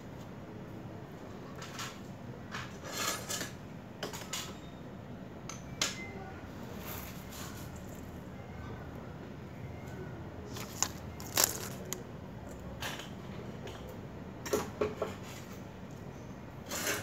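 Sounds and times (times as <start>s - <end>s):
small hard parts clicking: 10.5s - 12.6s.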